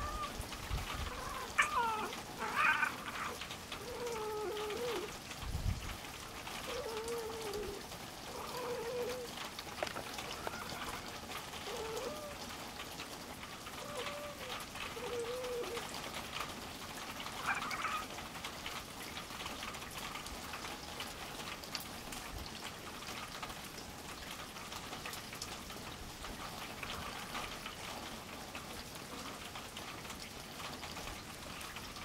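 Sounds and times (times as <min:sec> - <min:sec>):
cat meowing high: 0:00.0 - 0:00.4, 0:01.0 - 0:05.1, 0:17.4 - 0:18.1
cat low wavering calls: 0:00.0 - 0:05.4, 0:06.4 - 0:12.8, 0:13.6 - 0:16.0, 0:17.3 - 0:18.2.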